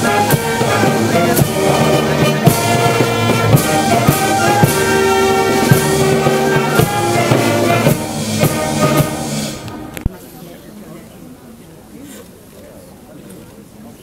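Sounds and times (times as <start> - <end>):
drum beat: 0.0 - 9.6
brass band playing: 0.0 - 10.1.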